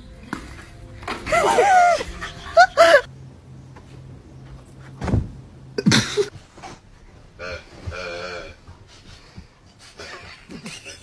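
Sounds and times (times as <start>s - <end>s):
dull thump: 5.0s - 5.4s.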